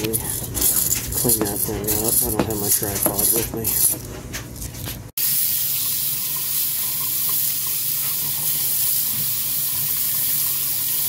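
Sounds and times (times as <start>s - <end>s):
tap water running into sink: 5.2s - 11.0s.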